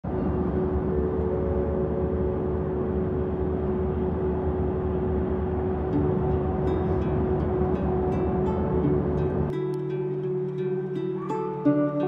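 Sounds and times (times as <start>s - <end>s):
car road and engine rumble: 0.0s - 9.5s
faint steady hum: 0.1s - 12.0s.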